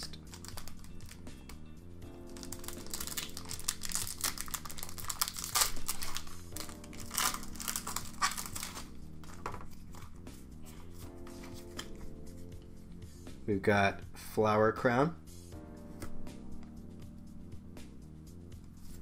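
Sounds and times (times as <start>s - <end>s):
foil wrapper crinkling and tearing: 0.0s - 1.2s, 2.3s - 9.4s.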